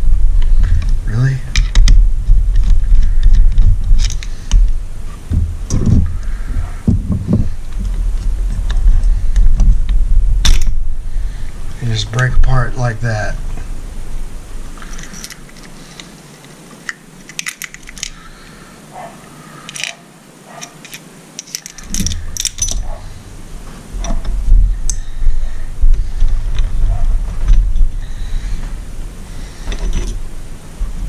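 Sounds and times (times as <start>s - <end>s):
metal parts clinking and rattling: 2.6s - 4.3s, 14.9s - 16.1s, 17.2s - 18.2s, 19.7s - 20.0s, 20.6s - 22.9s, 29.6s - 30.2s.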